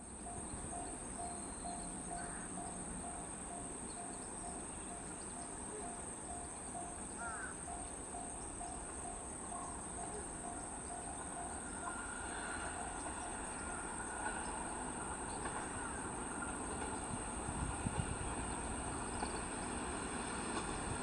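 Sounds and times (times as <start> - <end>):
electric train running: 0.0 - 21.0
insects chirring: 0.1 - 21.0
train wheels knocking on rails: 10.0 - 21.0.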